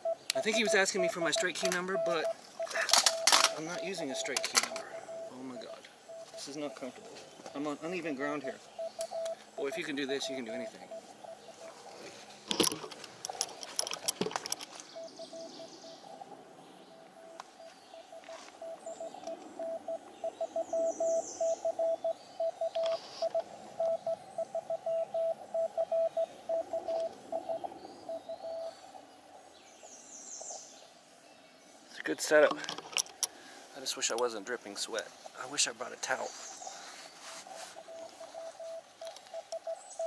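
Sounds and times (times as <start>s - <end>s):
morse code tone: 0.0s - 7.0s, 8.0s - 11.7s, 17.2s - 28.7s, 37.6s - 39.9s
faint birds chirping: 0.0s - 40.0s.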